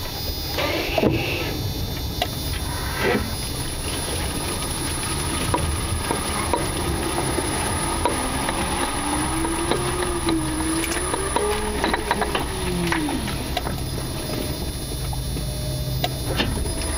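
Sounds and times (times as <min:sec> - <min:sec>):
faint wavering tone: 0:00.0 - 0:16.9
steady low rumble: 0:01.2 - 0:16.9
knocks and clicks under car: 0:03.8 - 0:16.9.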